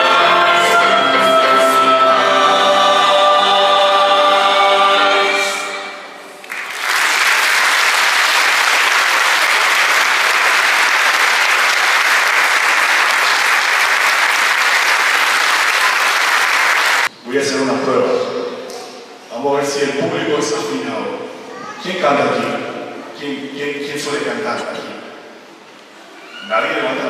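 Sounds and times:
choir with strings and keyboard: 0.0s - 6.4s
audience applause: 6.4s - 17.1s.

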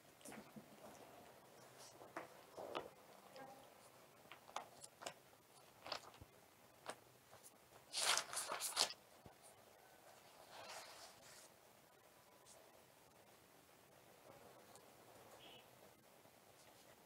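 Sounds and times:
paper pages rustling: 3.8s - 9.0s, 10.4s - 11.5s.

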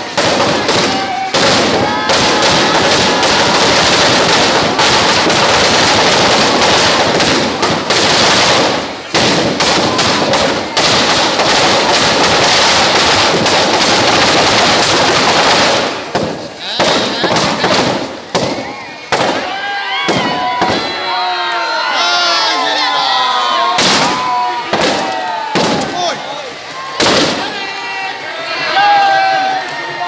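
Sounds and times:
firecrackers crackling: 0.0s - 30.0s.

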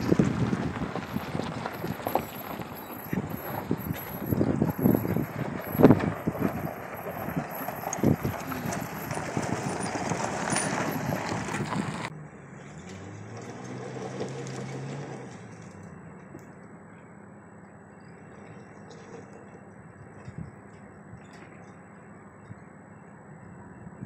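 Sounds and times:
knocks over rocky trail: 0.0s - 12.1s
car engine rumbling: 0.0s - 24.0s.

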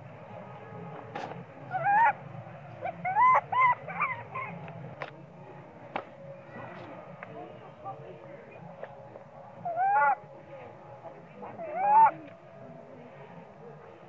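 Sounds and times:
baby monkey crying: 1.7s - 2.2s, 2.8s - 4.6s, 9.6s - 10.2s, 11.6s - 12.2s.

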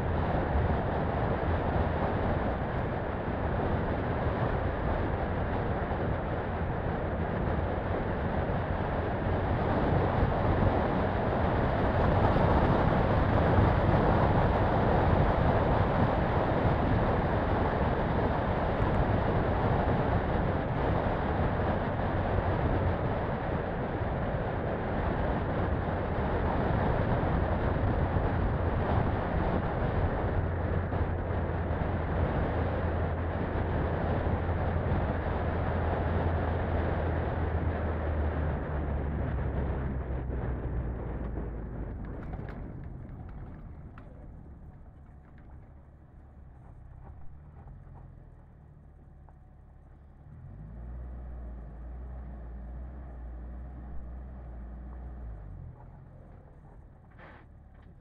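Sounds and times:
vehicle engine and tyre noise: 0.0s - 58.0s.

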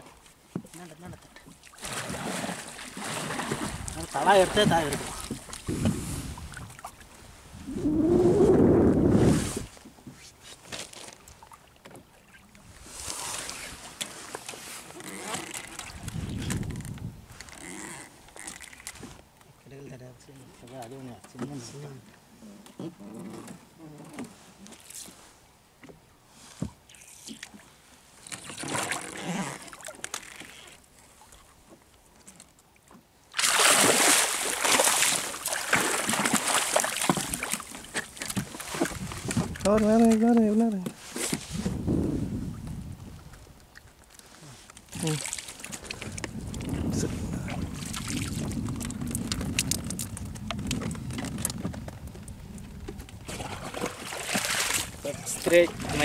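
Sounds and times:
quiet water sounds: 0.0s - 56.0s
wind: 0.0s - 56.0s
fish splashing at water surface: 33.4s - 38.9s.

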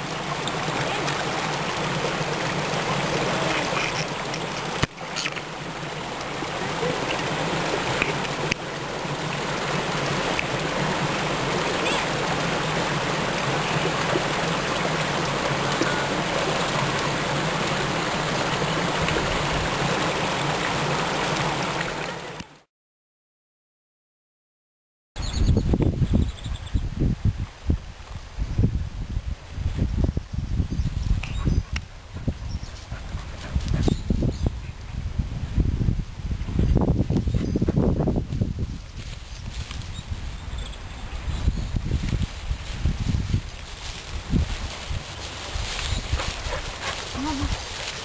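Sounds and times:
steady rushing water-like noise: 0.0s - 22.7s, 39.0s - 48.0s.

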